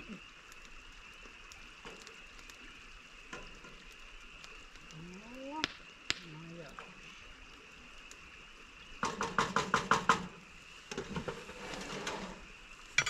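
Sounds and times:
steady high hiss: 0.0 - 13.0.

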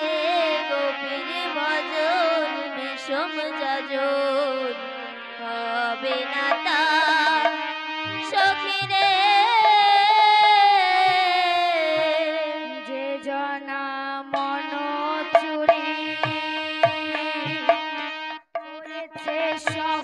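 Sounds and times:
woman singing devotional song: 0.0 - 20.0
drum strokes: 15.4 - 18.0, 18.6 - 20.0.

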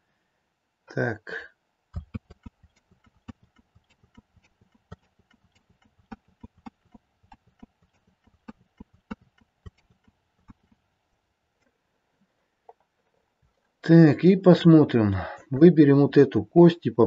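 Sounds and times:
mouse and keyboard clicking: 2.0 - 10.8.

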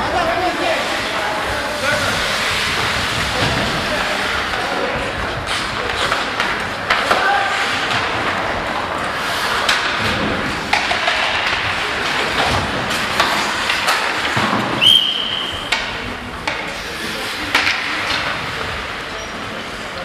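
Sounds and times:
arena crowd din: 0.0 - 20.0
hockey sticks and puck clacking: 0.0 - 20.0
referee's whistle: 14.8 - 15.6.

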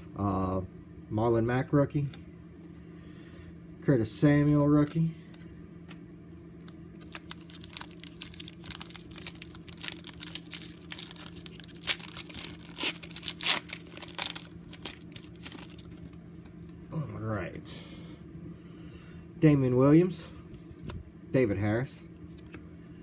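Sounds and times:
plastic wrapper tearing and crinkling: 7.0 - 16.1.

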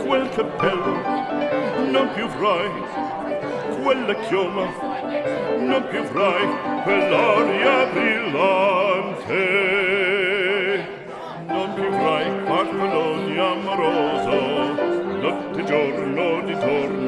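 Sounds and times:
instrumental accompaniment: 0.0 - 9.3
operatic singing: 0.0 - 17.0.

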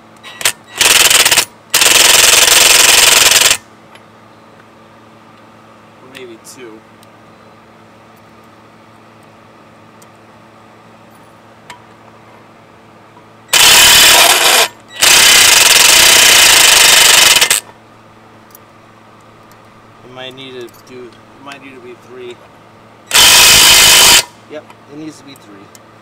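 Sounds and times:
impact driver hammering: 13.6 - 17.6.

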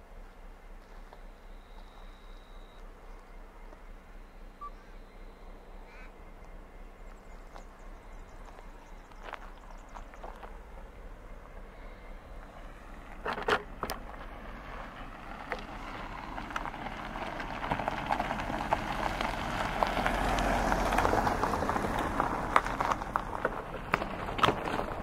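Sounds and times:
car tyres crunching on gravel: 5.5 - 25.0.

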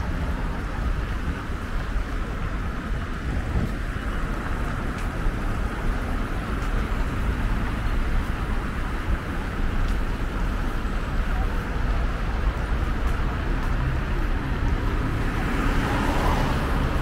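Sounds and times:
wind buffeting microphone: 0.0 - 7.6
traffic noise: 0.0 - 17.0.

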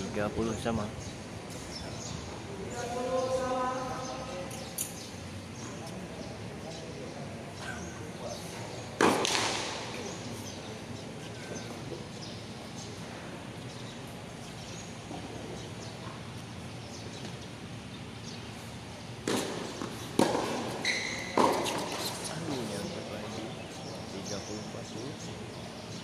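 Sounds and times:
tennis ball impacts on hard court: 9.0 - 10.1, 19.2 - 22.3.

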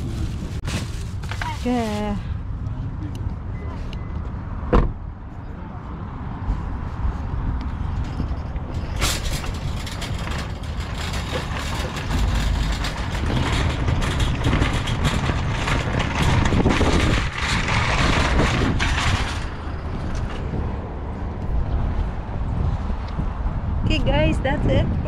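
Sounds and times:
shopping cart rattling on asphalt: 0.0 - 2.2, 8.2 - 20.4
cart bumping into carts: 8.2 - 20.4.

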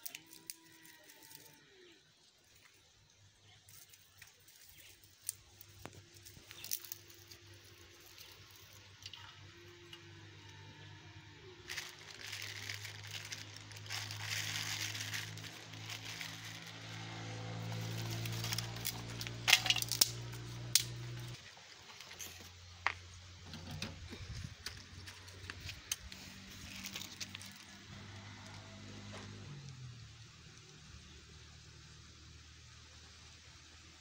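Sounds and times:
dry grass rustling and crackling: 0.0 - 1.6, 3.6 - 22.2, 24.1 - 28.4.

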